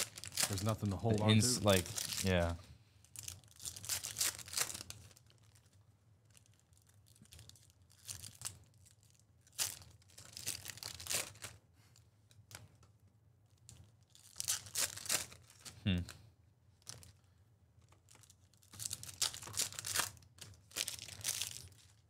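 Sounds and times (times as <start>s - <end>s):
foil wrappers ripping: 0.0s - 2.4s, 3.1s - 11.6s, 13.8s - 15.7s, 18.1s - 22.0s
quiet wrapper handling: 0.0s - 22.0s.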